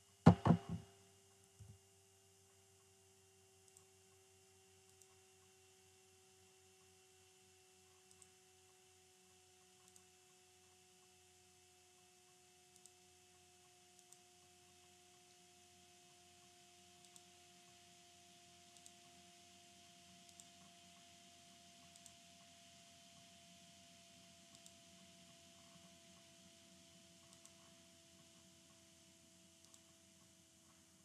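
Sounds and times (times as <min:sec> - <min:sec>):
computer mouse clicks: 0:03.6 - 0:04.2, 0:04.8 - 0:05.6, 0:07.9 - 0:11.1, 0:12.0 - 0:15.4, 0:16.1 - 0:17.4, 0:18.7 - 0:19.1, 0:20.1 - 0:22.5, 0:24.4 - 0:28.8, 0:29.6 - 0:30.8.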